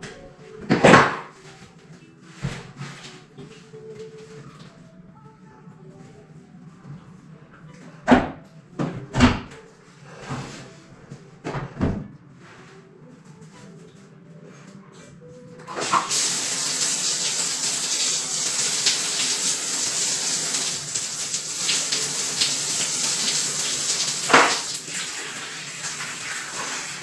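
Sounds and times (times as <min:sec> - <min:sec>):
water rushing into tub: 0:15.7 - 0:27.0.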